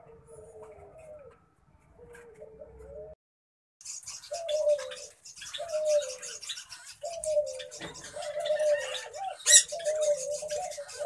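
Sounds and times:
bird cooing: 0.0s - 3.2s, 4.1s - 11.0s
high-pitched bird chirping: 3.8s - 11.0s.

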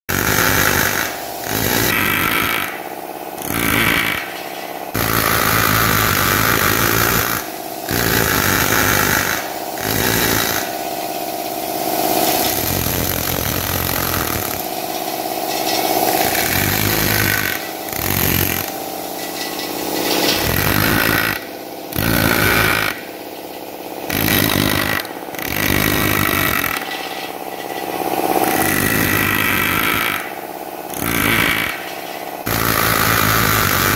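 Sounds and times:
pneumatic hammer chiseling stone: 0.1s - 33.9s.

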